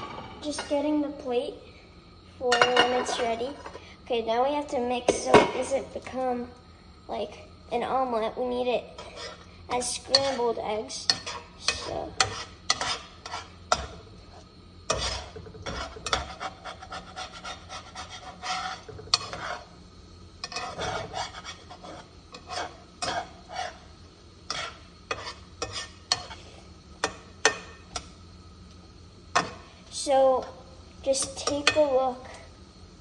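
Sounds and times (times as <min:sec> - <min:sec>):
utensil scraping frying pan: 0:08.9 - 0:28.3, 0:29.3 - 0:29.8, 0:31.1 - 0:32.1
utensil tapping pan: 0:11.0 - 0:14.0, 0:14.9 - 0:19.6, 0:24.5 - 0:26.4, 0:27.0 - 0:28.1, 0:31.2 - 0:31.9.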